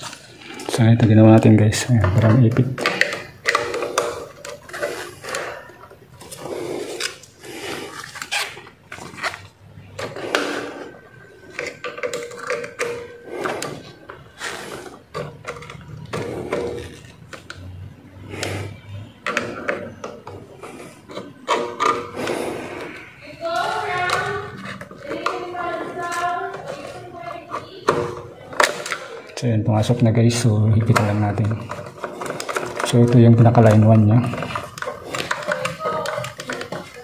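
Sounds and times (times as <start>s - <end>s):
tools scraping and clicking on terminal: 1.4s - 29.4s.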